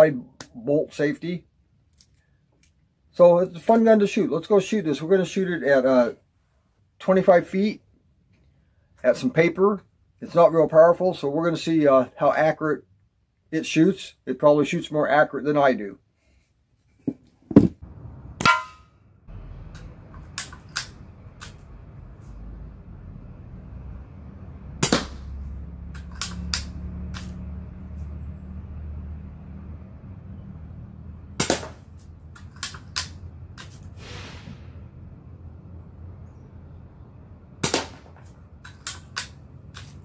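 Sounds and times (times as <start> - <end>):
air pistol firing snaps: 37.6 - 38.1.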